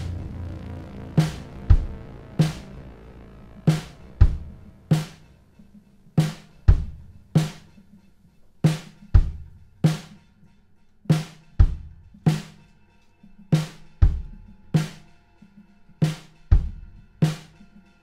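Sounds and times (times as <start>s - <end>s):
bass drum thuds: 0.0s - 5.2s.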